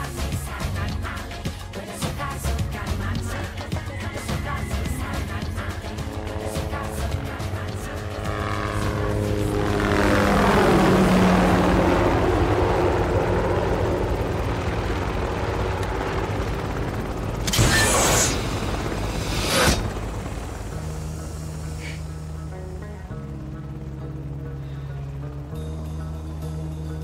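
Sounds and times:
helicopter rotor and engine: 0:00.0 - 0:27.0
loud rushing burst: 0:17.4 - 0:21.2.

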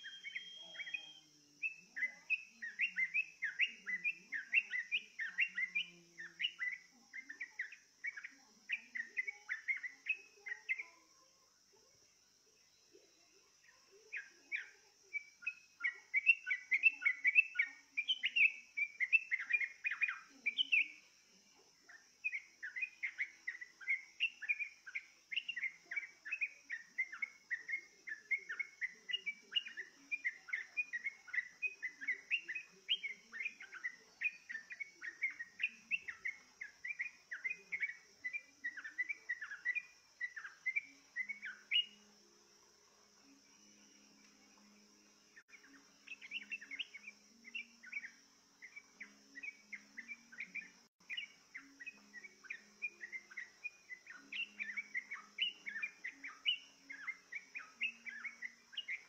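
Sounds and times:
bird song chirpy notes: 0:00.0 - 0:11.1, 0:12.6 - 0:59.0
faint high insect-like hiss: 0:00.0 - 0:59.0.

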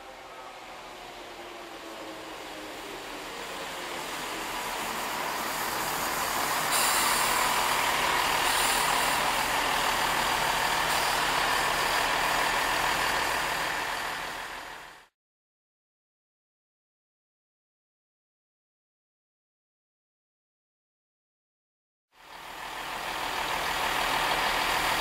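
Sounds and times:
diesel train engines running: 0:00.0 - 0:15.1, 0:22.2 - 0:25.0.

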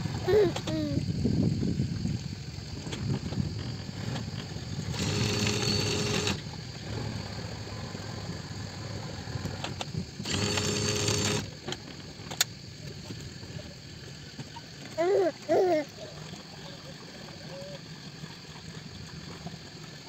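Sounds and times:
small electric motor whirring: 0:04.8 - 0:06.4, 0:09.4 - 0:11.6.

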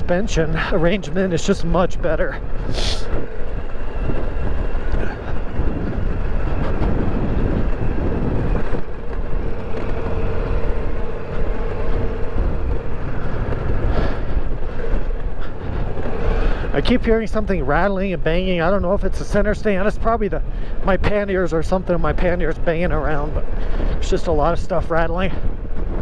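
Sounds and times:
motorcycle engine at low revs: 0:00.0 - 0:26.0
tyres crunching over stones: 0:06.4 - 0:16.2.

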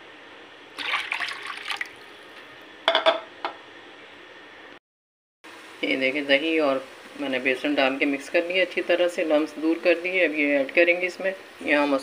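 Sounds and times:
water pouring into batter: 0:00.8 - 0:02.3.

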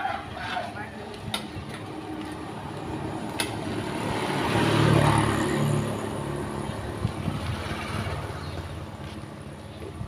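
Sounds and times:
vehicle engine passing: 0:01.8 - 0:09.2.

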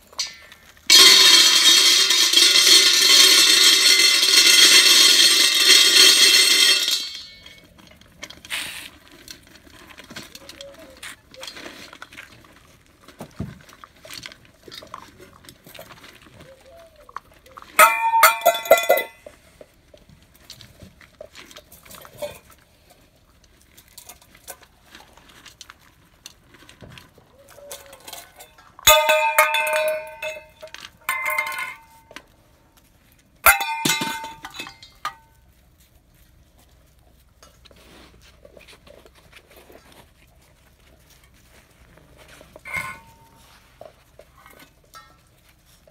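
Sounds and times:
metal pots and pans clanging: 0:00.0 - 0:07.6, 0:17.8 - 0:19.3, 0:27.6 - 0:32.2, 0:33.4 - 0:35.3, 0:42.6 - 0:43.5, 0:44.4 - 0:45.3.

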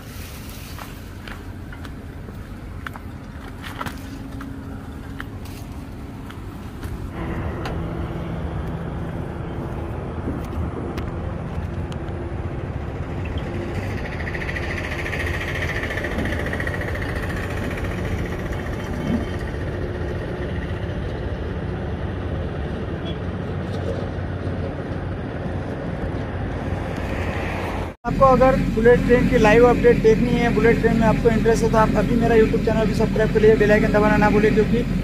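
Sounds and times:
passing vehicle hiss: 0:00.0 - 0:01.6, 0:26.6 - 0:29.4
heavy machinery engine hum: 0:00.0 - 0:35.0
road traffic: 0:00.0 - 0:35.0.

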